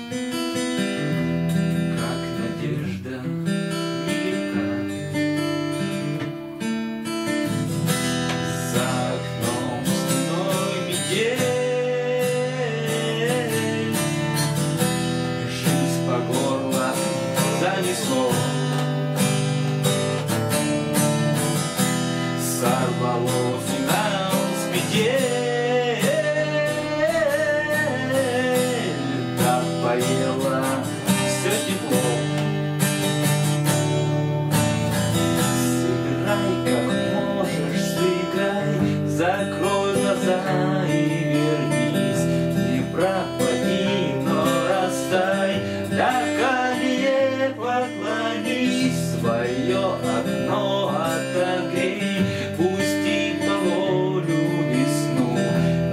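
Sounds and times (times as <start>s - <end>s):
man singing: 0.0s - 6.4s, 7.4s - 55.9s
acoustic guitar strumming: 0.0s - 55.9s.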